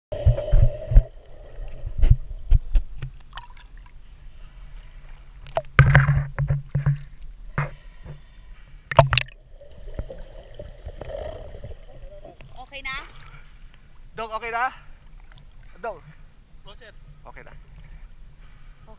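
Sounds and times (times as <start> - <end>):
water splashes: 0.2 - 4.5, 8.9 - 13.5.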